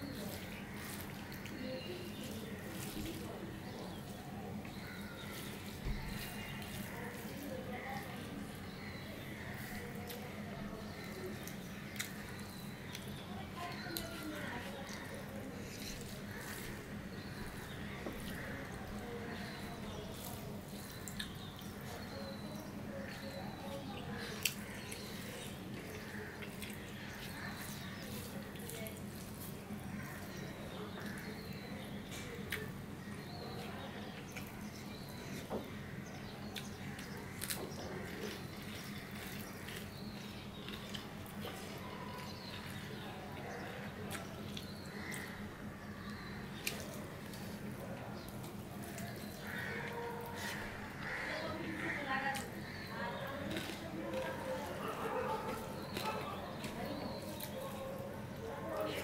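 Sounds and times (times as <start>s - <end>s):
fingers squishing food: 0.0s - 51.4s, 52.3s - 59.0s
wet chewing and lip-smacking: 8.7s - 32.8s, 36.2s - 51.1s, 52.4s - 59.0s.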